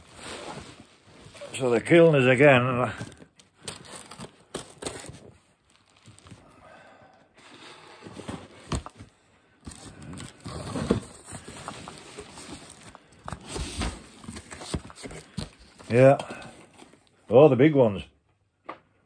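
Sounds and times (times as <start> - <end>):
packing material rustling: 0.0 - 6.6, 8.0 - 17.1.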